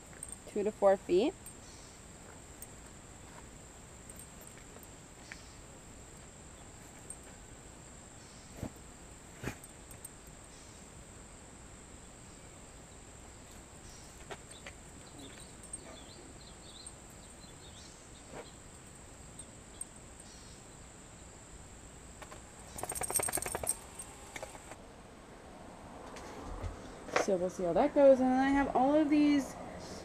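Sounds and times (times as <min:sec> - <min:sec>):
faint bird chirps: 0:13.8 - 0:21.2.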